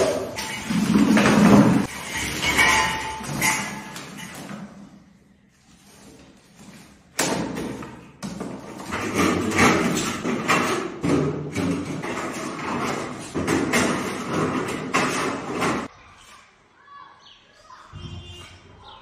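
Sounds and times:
scrap metal clattering into bucket: 0:00.0 - 0:05.0, 0:08.4 - 0:15.9.

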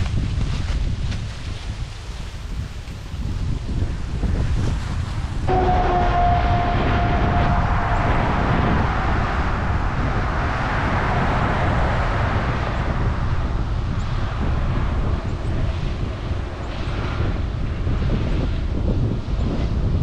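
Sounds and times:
wind buffeting microphone: 0:00.0 - 0:20.0
faint whine: 0:05.5 - 0:18.6.

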